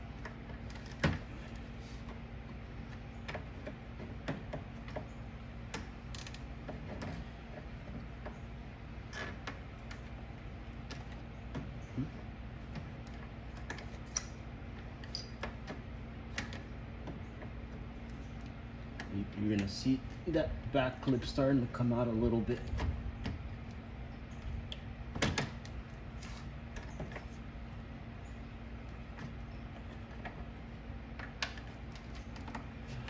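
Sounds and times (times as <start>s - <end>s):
steady low hum: 0.0s - 33.0s
plastic parts clicking and creaking: 0.2s - 5.1s, 5.7s - 8.4s, 28.8s - 33.0s.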